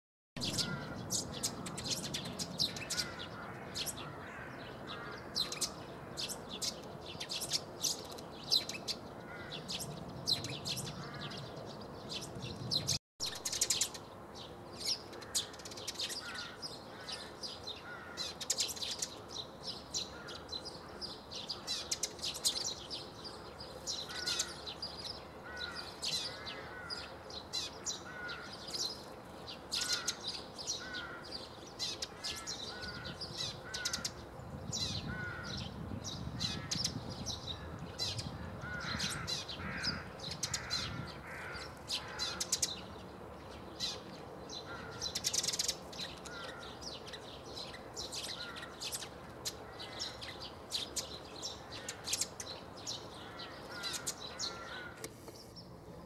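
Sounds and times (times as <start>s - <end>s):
sparrows chirping: 0.4s - 56.0s.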